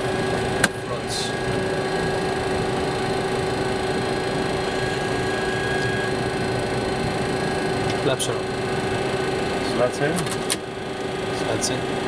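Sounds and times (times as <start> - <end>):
constant mid-pitched tone: 0.0 - 10.1
idling jet engines: 0.0 - 12.0.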